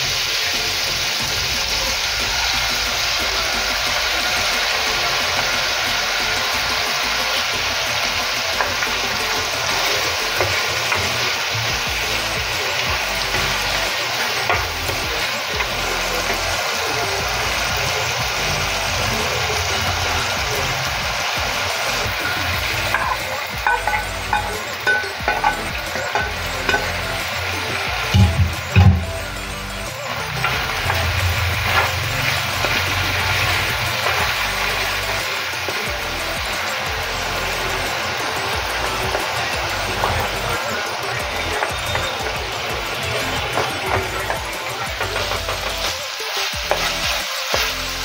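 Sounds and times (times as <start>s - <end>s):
meat and vegetables sizzling in a pan: 0.0s - 48.0s
spoon scraping and knocking pan: 7.6s - 16.5s, 22.0s - 29.2s.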